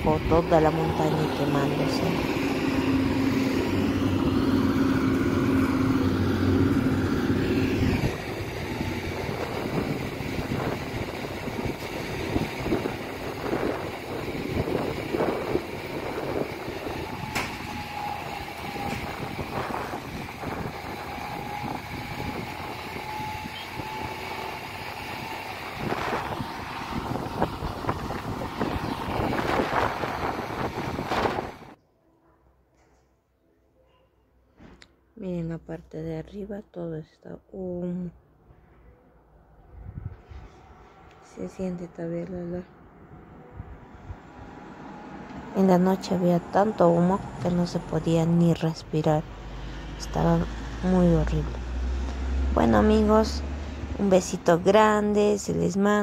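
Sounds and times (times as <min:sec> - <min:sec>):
distant vehicles humming: 0:00.0 - 0:31.8, 0:38.6 - 0:56.0
vehicle engine running close: 0:00.0 - 0:31.8, 0:43.2 - 0:56.0.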